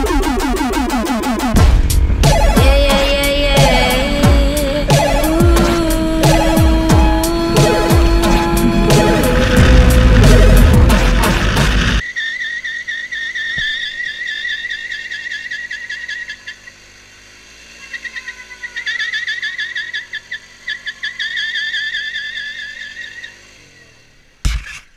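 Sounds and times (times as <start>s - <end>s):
loud music: 0.0s - 12.0s.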